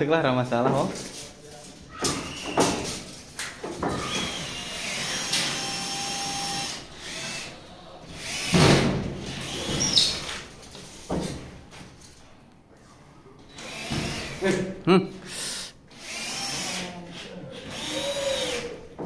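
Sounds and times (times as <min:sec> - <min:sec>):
power drill driving a screw: 0:04.0 - 0:07.5, 0:08.2 - 0:10.3, 0:13.5 - 0:14.4, 0:15.9 - 0:16.9, 0:17.7 - 0:18.7.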